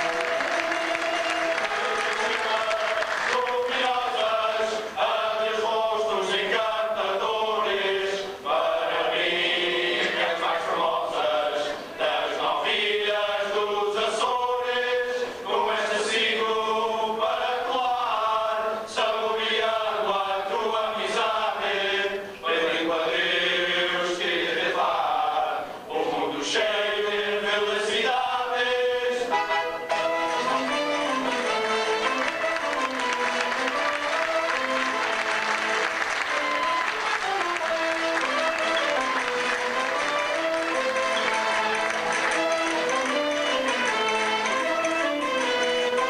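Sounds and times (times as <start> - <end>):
men singing together: 0.0 - 29.4.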